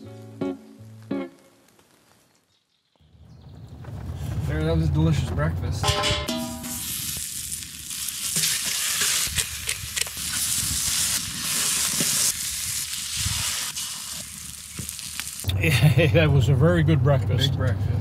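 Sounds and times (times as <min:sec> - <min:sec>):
food sizzling in a pan: 0:06.3 - 0:15.5.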